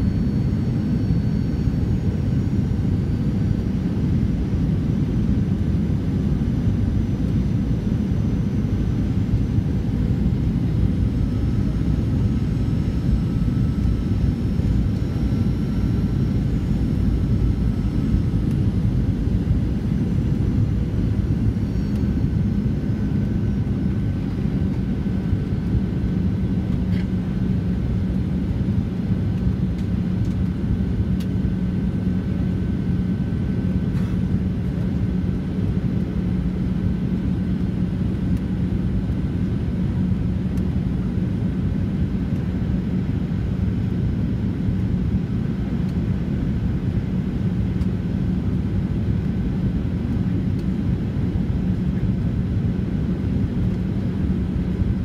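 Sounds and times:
faint high whine: 0:00.0 - 0:40.8.

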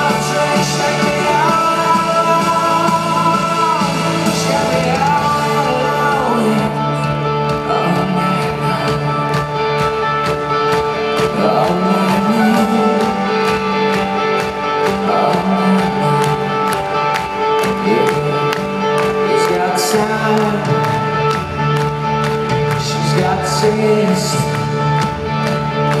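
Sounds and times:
steady drum beat: 0:00.0 - 0:06.6
bass guitar: 0:00.0 - 0:26.0
electric guitars: 0:00.0 - 0:26.0.

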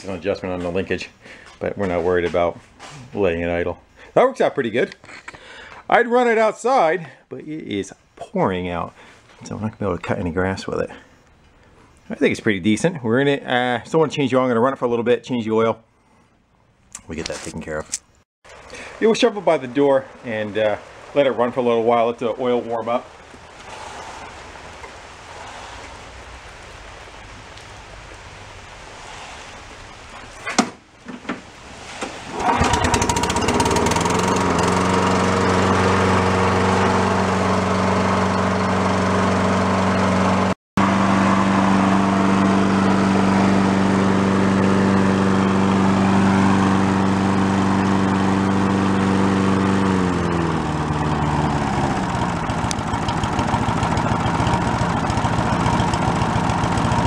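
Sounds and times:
rain hissing: 0:18.5 - 0:30.5, 0:31.4 - 0:57.0
lawn mower engine running: 0:32.3 - 0:57.0.

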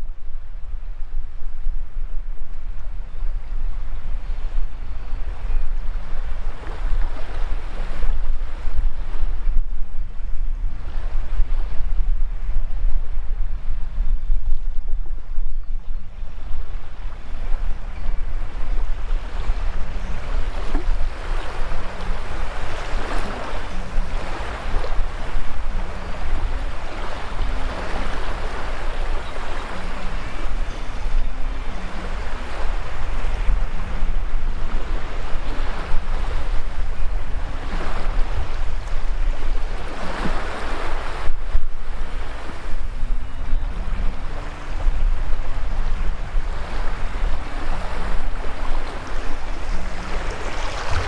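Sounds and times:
wind rumbling on microphone: 0:00.0 - 0:51.0
small waves washing over sand: 0:18.3 - 0:43.2, 0:43.8 - 0:51.0.

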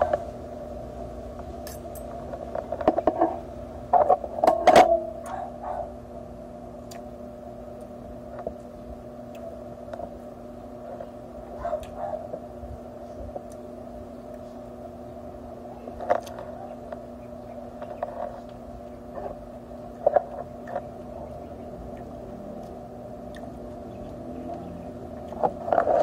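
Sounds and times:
steady background hum: 0:00.0 - 0:26.0
chewing: 0:15.9 - 0:17.0, 0:17.8 - 0:26.0.

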